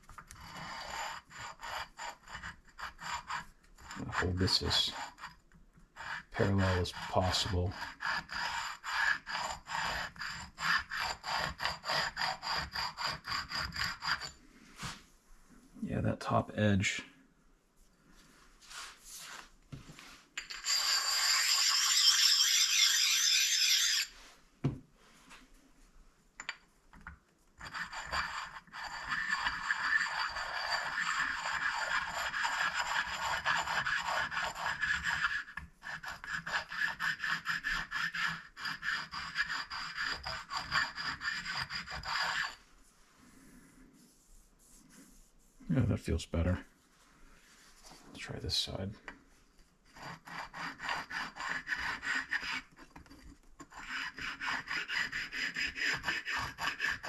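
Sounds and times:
stone scraping on metal: 0.2s - 5.4s, 6.0s - 15.0s, 20.4s - 24.3s, 27.6s - 42.6s, 49.0s - 57.0s.

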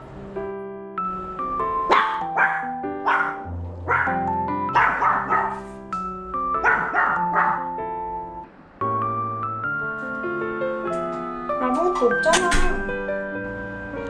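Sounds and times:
light background music: 0.0s - 14.0s
small dog barking: 1.9s - 5.7s, 6.6s - 7.7s.

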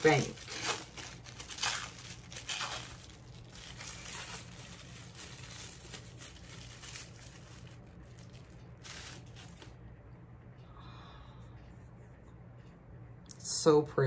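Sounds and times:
tissue paper crinkling: 0.0s - 9.8s.

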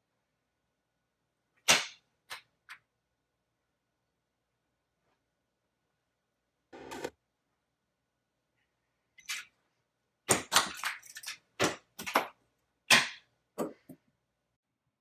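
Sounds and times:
sharp knocks and cracks: 1.6s - 2.8s, 10.3s - 14.0s.

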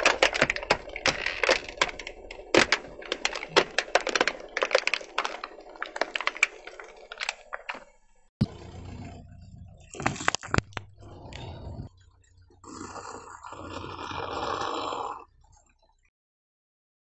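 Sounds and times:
plastic toy cracking under tyre: 0.0s - 7.9s, 10.0s - 10.8s.

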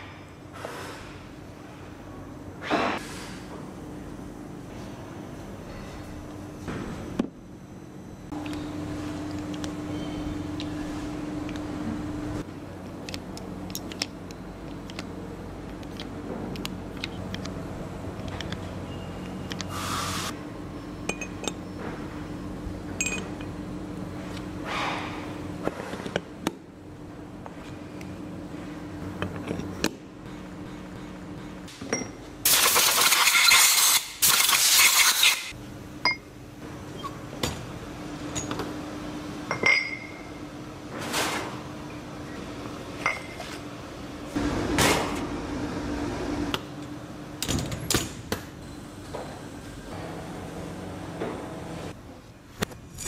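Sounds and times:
machine hum: 3.6s - 25.6s, 43.7s - 47.9s, 48.6s - 52.2s
loud hiss: 19.7s - 20.3s.

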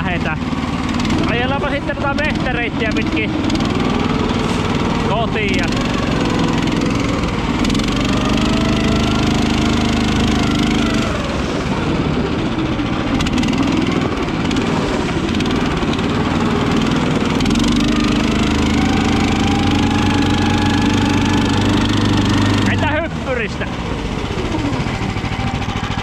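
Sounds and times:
tracked motor sled engine running: 0.0s - 26.0s.

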